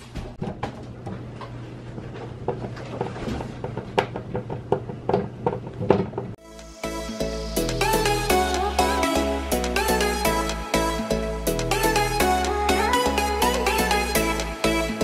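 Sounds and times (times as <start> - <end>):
melodic music: 6.4 - 15.0.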